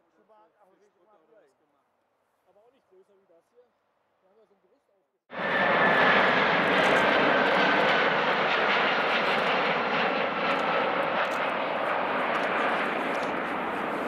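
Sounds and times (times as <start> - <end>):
jet engines rushing and whining: 5.3 - 14.0.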